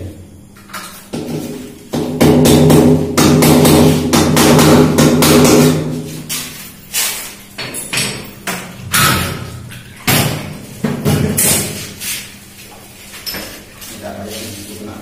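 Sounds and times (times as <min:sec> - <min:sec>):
hard knocks and bangs: 0:01.1 - 0:06.1, 0:07.6 - 0:11.8.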